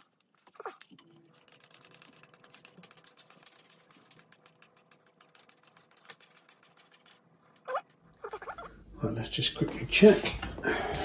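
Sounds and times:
plastic coil clicking and rattling: 0.9 - 7.7.

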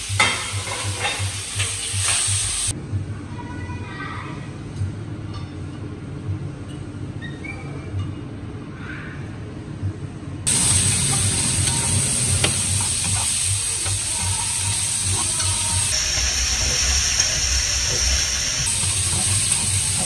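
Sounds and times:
food sizzling in a hot pan: 0.0 - 2.7, 10.5 - 20.0
low rumble: 14.6 - 20.0.

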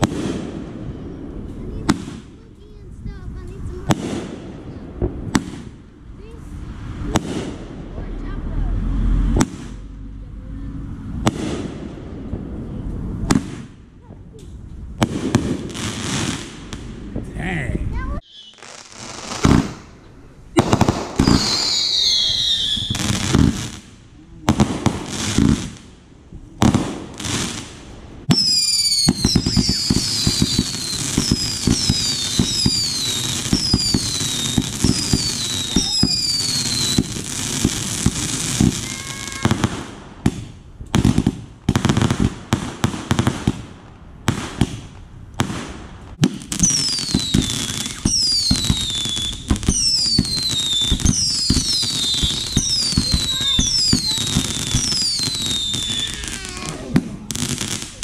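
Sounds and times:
firework pops and crackling: 0.0 - 0.7, 1.4 - 6.4, 7.0 - 8.1, 9.3 - 9.8, 11.2 - 17.3, 18.2 - 58.0
firework whistles falling in pitch: 18.2 - 19.7, 21.2 - 23.2, 28.3 - 37.0, 46.6 - 56.7.

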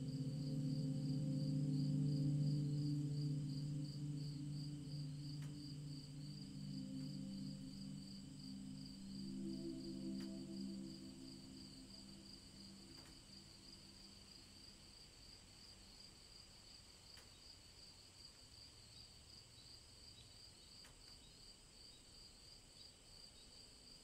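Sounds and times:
cricket trill: 0.0 - 24.0
faint ticks: 5.3 - 5.8, 12.0 - 14.2, 16.3 - 24.0.

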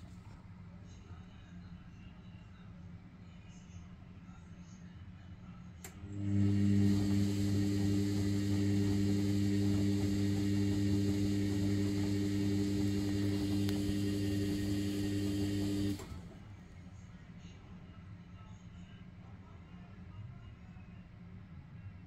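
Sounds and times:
washing machine electric hum: 0.0 - 0.6, 5.8 - 17.0.

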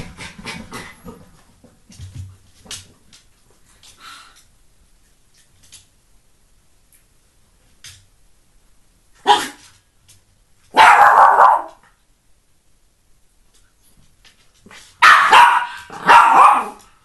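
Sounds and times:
dog barking: 9.2 - 9.6, 10.7 - 11.8, 15.0 - 16.9.

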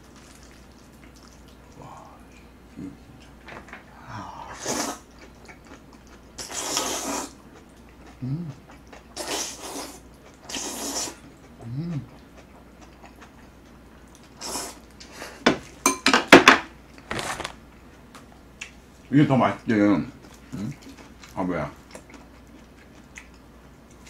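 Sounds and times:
person slurping noodles: 4.3 - 5.1, 6.4 - 7.4, 9.2 - 11.2, 14.4 - 14.8.

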